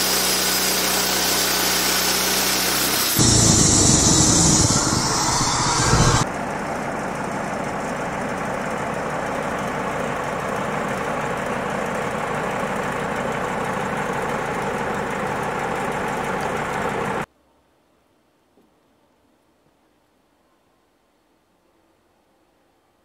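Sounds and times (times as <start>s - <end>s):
sawmill engine idling: 0.0s - 17.3s.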